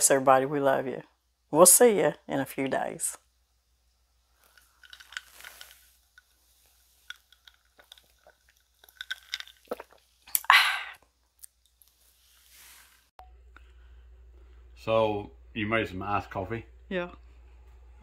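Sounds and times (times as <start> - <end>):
person sipping and swallowing: 4.4 - 11.8
wet mouth clicks: 7.1 - 10.6.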